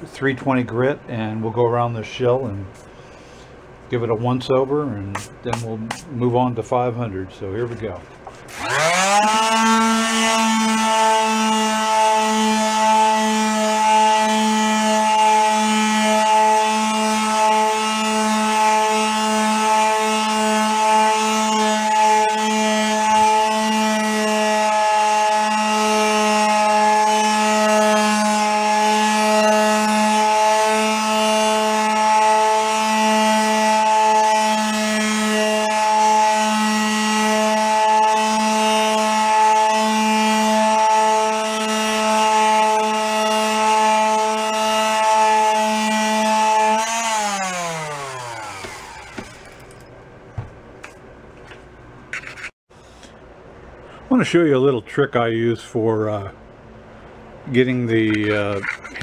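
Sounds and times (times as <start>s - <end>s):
sandpaper rubbing on wood: 5.1s - 6.2s
electric sander running: 8.4s - 49.8s.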